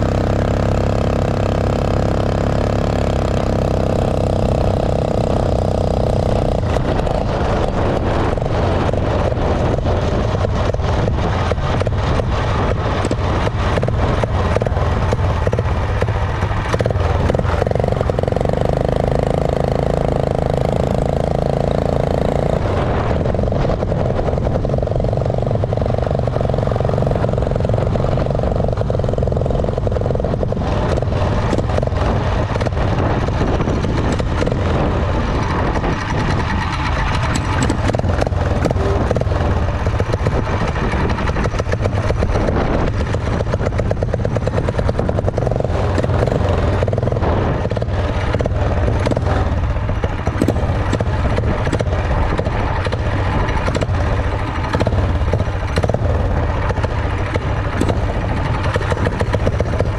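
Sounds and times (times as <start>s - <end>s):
rushing noise: 0.0s - 59.9s
small engine running: 0.0s - 59.9s.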